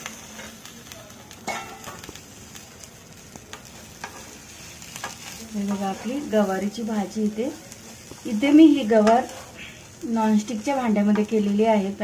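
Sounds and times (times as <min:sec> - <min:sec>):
faint sizzle: 0:00.0 - 0:12.0
spoon stirring and scraping pan: 0:03.5 - 0:11.7.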